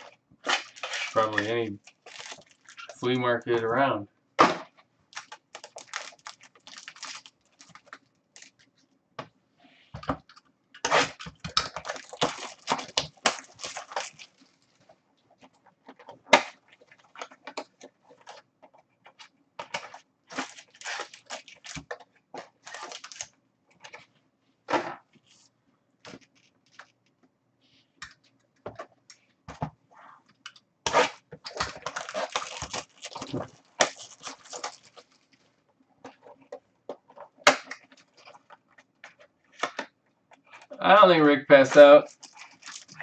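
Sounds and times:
wrappers crinkling and tearing: 0:00.0 - 0:03.2, 0:05.1 - 0:08.7, 0:10.8 - 0:14.8, 0:19.1 - 0:23.3, 0:30.9 - 0:35.5, 0:41.6 - 0:43.0
cards rustling: 0:00.5 - 0:03.3, 0:05.2 - 0:08.7, 0:11.2 - 0:14.6, 0:31.5 - 0:35.4, 0:41.5 - 0:43.0.

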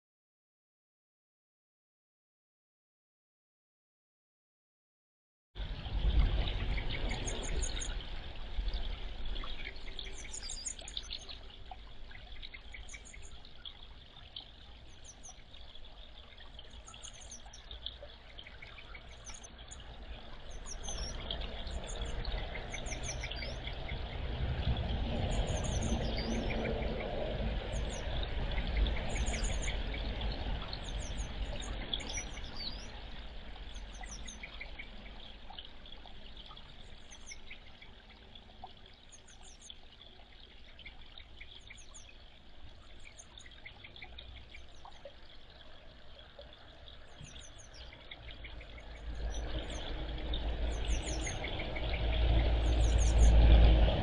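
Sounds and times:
trickling water: 0:05.6 - 0:54.0
wagtails high-pitched calls: 0:06.4 - 0:08.0, 0:08.8 - 0:24.2, 0:25.3 - 0:38.0, 0:46.6 - 0:53.4.

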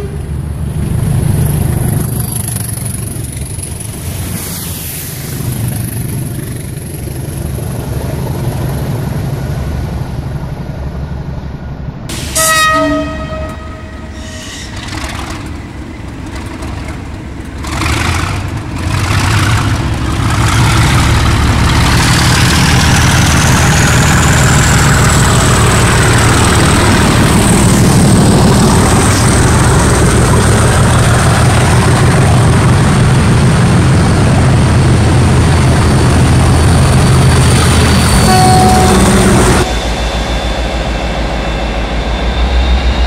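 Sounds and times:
locomotive horn blast: 0:00.0 - 0:00.3, 0:12.3 - 0:14.7, 0:38.2 - 0:39.8
train wagons rumbling past: 0:00.0 - 0:43.0
diesel engine revving: 0:17.6 - 0:38.1.

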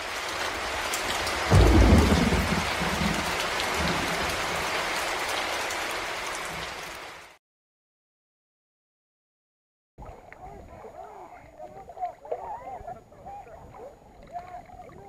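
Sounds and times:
steady rain: 0:00.0 - 0:07.4
thunder rumble: 0:00.5 - 0:04.7.

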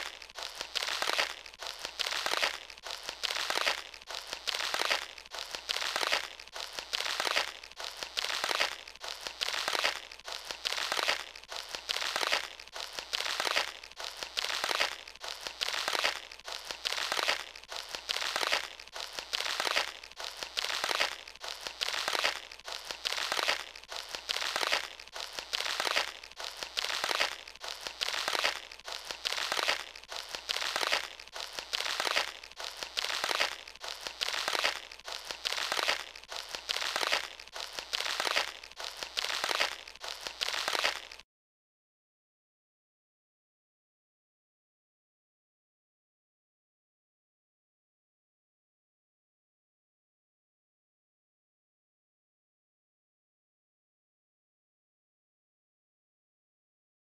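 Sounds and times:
hose water spraying on plants: 0:00.0 - 0:41.2.

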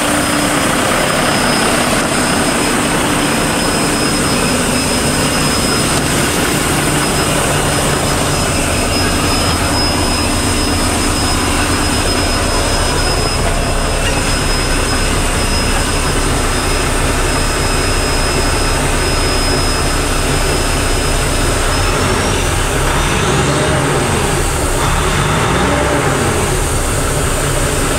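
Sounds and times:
diesel truck engine idling and revving: 0:00.0 - 0:27.9
high whine: 0:00.0 - 0:27.9.

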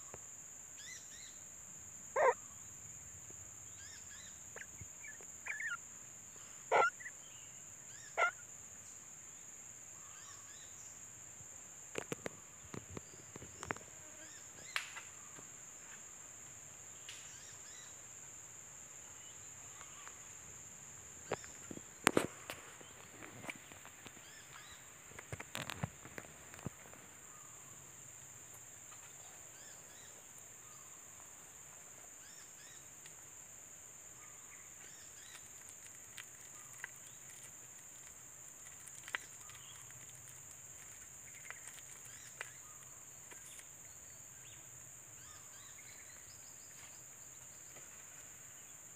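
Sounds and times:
soft high chirps: 0:03.8 - 0:05.8.

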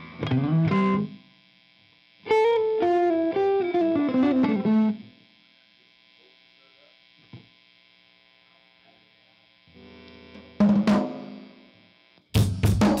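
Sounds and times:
faint steady hum: 0:00.0 - 0:12.4
drum hits: 0:12.4 - 0:13.0.

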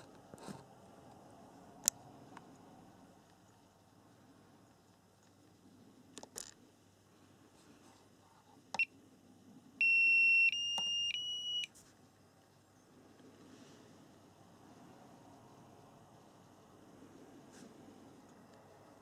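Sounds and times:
battery charger beeping: 0:09.8 - 0:11.7.

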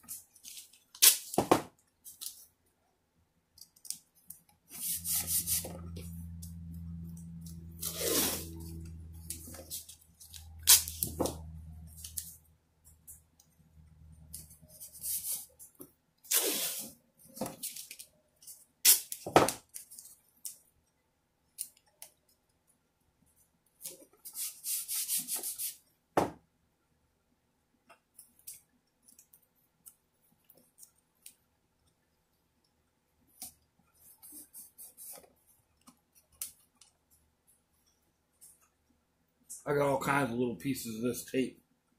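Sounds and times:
tape ripping: 0:00.4 - 0:01.4, 0:07.8 - 0:08.5, 0:09.2 - 0:11.2, 0:16.3 - 0:16.9, 0:18.8 - 0:20.0.

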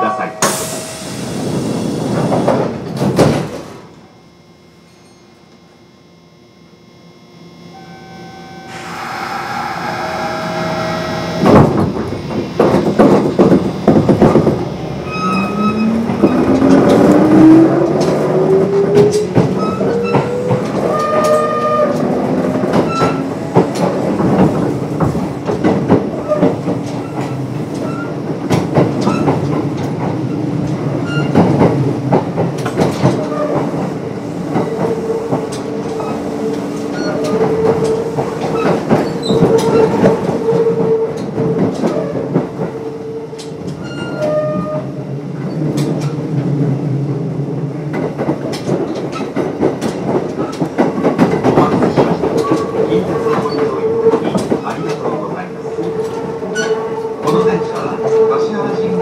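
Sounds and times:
electric train motor whine: 0:03.9 - 0:25.0
train wheels clacking: 0:15.2 - 0:42.8, 0:47.9 - 0:58.5.

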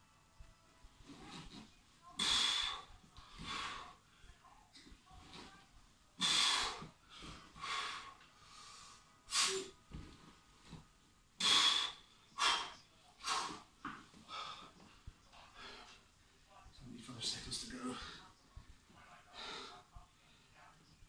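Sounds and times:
man breathing forcefully: 0:02.2 - 0:04.1, 0:06.2 - 0:09.7, 0:11.4 - 0:16.0.

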